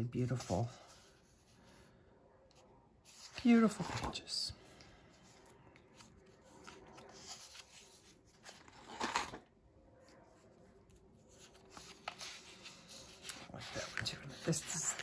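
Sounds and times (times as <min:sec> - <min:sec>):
paper sheet rustling: 0:05.8 - 0:09.4, 0:11.2 - 0:15.0.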